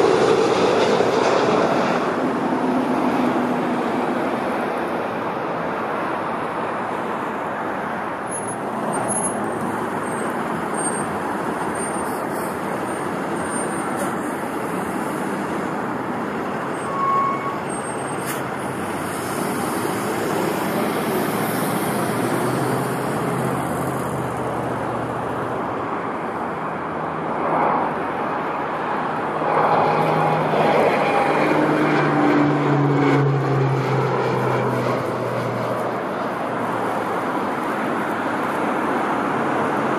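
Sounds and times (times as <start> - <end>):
road traffic noise: 0.0 - 39.9
heavy vehicle passing: 28.8 - 37.6.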